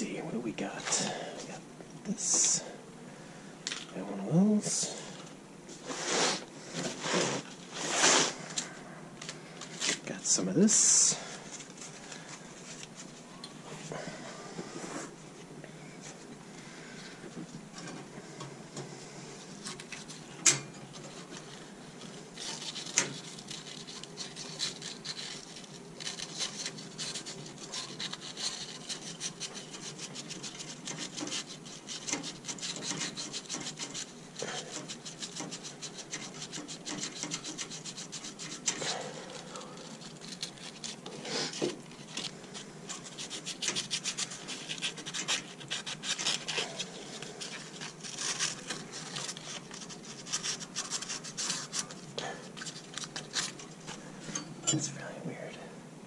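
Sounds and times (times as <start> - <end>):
hands scraping metal parts: 19.6 - 55.0.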